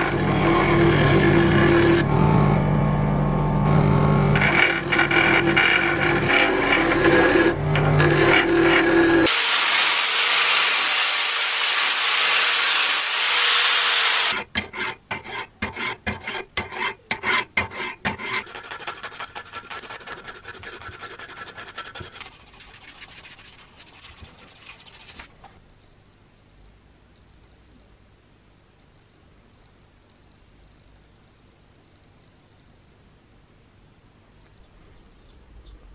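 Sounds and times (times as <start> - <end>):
bench grinder grinding steel: 0.0 - 2.1, 3.6 - 25.2
emery cloth rubbing steel: 4.4 - 9.3, 17.8 - 25.3
hand file scraping steel: 4.4 - 9.4, 12.8 - 25.3.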